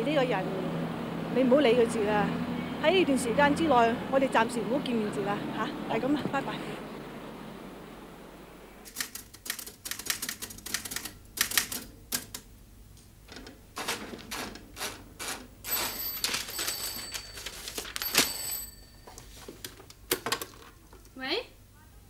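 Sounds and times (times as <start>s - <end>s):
typewriter keys clacking: 8.9s - 12.4s, 13.8s - 18.8s
telephone ringing: 15.6s - 19.5s.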